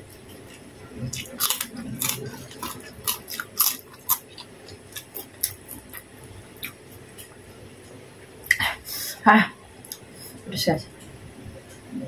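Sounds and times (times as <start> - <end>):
person chewing food: 0.0 - 7.4.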